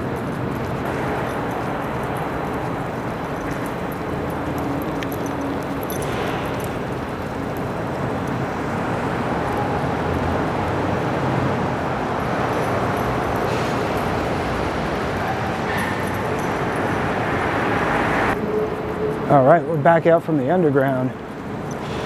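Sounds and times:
city traffic rumble: 0.0 - 22.0.

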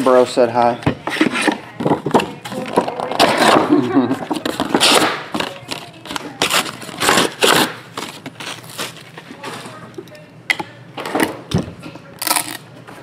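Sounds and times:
plastic shrink-wrap crinkling: 5.5 - 9.7.

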